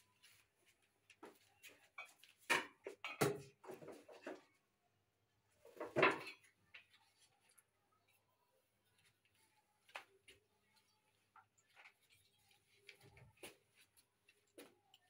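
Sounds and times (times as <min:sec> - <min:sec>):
kitchen things knocking and clattering: 0:01.9 - 0:04.6, 0:05.6 - 0:06.9.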